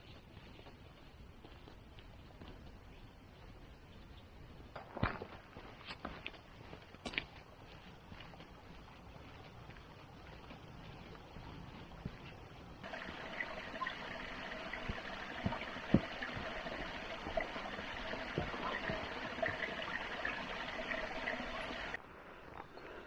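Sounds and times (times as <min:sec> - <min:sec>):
footsteps on wooden bridge: 0:04.8 - 0:21.3
stream trickling: 0:12.8 - 0:22.0.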